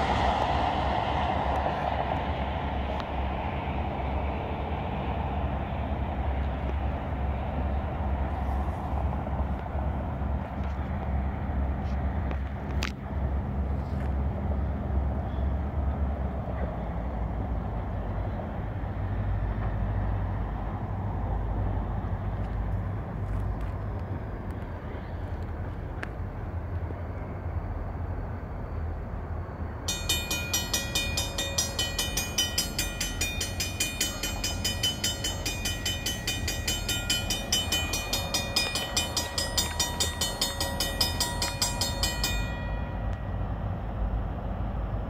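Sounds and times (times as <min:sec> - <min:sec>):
diesel locomotive rumbling: 0:00.0 - 0:45.0
locomotive bell ringing: 0:29.9 - 0:44.3.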